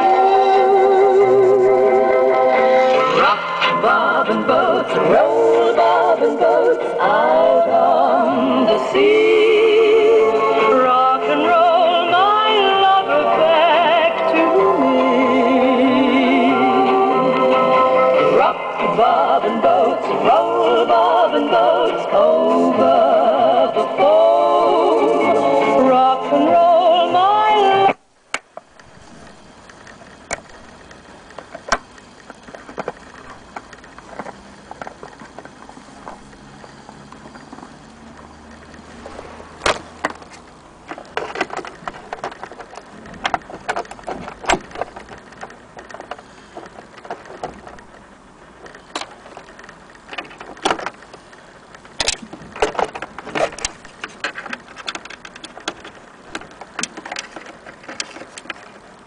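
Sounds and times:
song from record player: 0:00.0 - 0:59.0
sharp clicks and knocks: 0:28.3 - 0:58.9.

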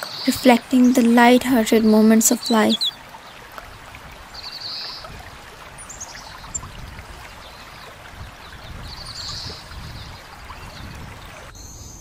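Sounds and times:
water trickling over rocks: 0:00.0 - 0:11.6
bird trilling: 0:02.3 - 0:03.0
high bird chirp: 0:02.3 - 0:03.0.

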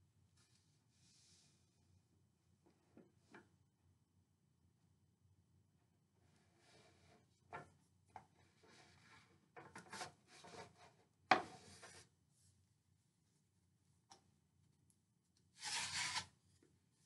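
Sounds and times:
loud wooden scrape: 0:15.6 - 0:16.3.

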